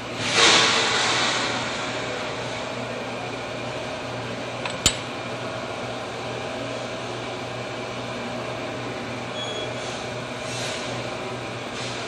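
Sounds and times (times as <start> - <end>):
metal clink on vise: 4.6 - 5.1.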